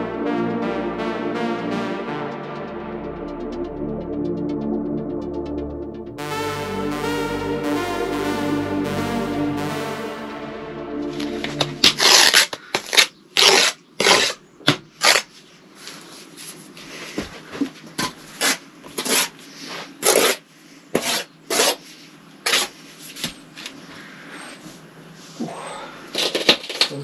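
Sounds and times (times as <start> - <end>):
trowel scraping mortar: 18.4 - 19.4, 20.0 - 20.4, 21.0 - 21.9, 22.5 - 22.8.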